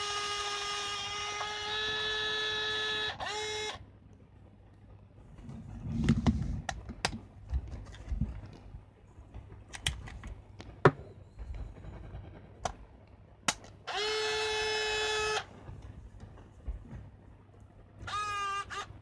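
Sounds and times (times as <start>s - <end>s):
camera motor whining: 0.0s - 3.8s, 13.8s - 15.5s, 18.1s - 18.9s.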